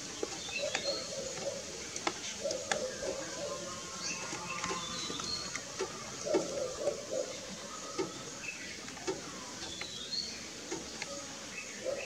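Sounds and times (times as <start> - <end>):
bird bill tapping: 0.1 - 3.5, 4.1 - 7.2.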